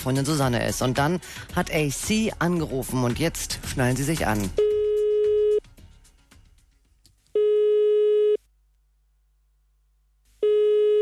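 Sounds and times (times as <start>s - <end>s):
telephone ringback tone: 4.6s - 5.6s, 7.4s - 8.4s, 10.4s - 11.0s.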